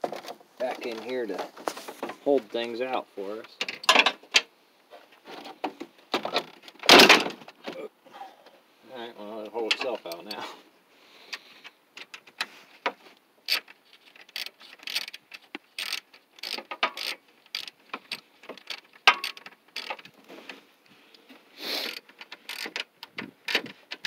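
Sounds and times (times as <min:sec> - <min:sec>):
hand ratchet clicking: 0:13.5 - 0:20.1, 0:21.8 - 0:24.0.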